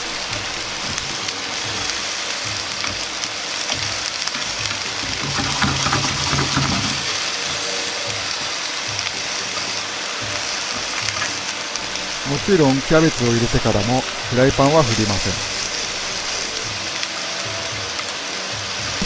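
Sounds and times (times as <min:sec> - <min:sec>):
vegetables sizzling in frying pan: 0:00.0 - 0:19.0
chopsticks stirring: 0:03.7 - 0:07.6.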